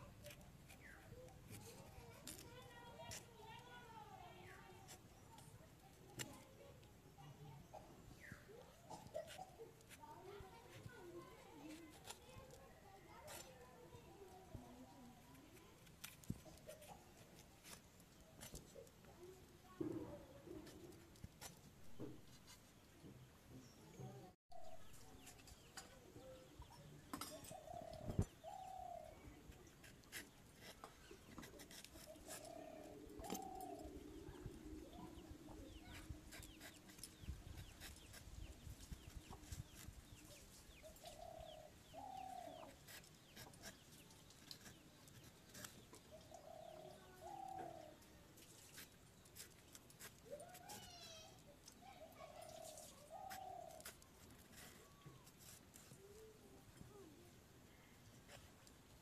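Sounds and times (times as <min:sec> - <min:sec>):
vegetable being pared with a blade: 0:29.7 - 0:33.7
dove cooing: 0:32.1 - 0:36.0.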